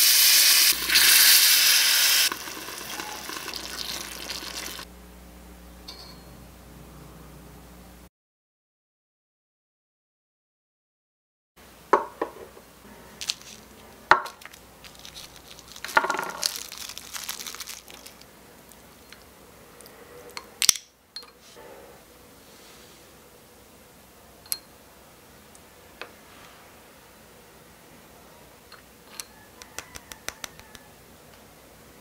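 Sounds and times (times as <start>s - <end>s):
clinks of tiny glassware: 5.9s - 6.3s
rustling of food being tipped: 13.2s - 19.1s.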